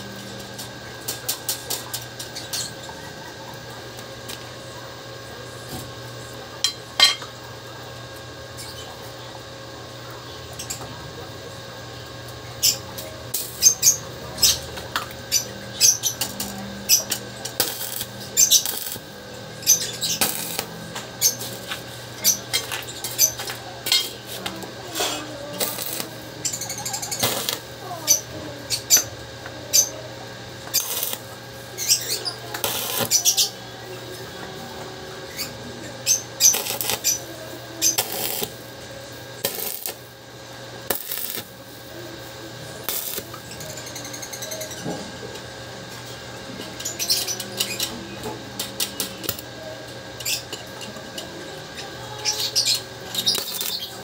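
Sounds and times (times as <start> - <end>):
steady low hum: 0.0 - 54.0
crackling welding arc: 0.4 - 2.8, 12.6 - 34.7, 35.3 - 44.8, 48.6 - 49.5, 52.0 - 54.0.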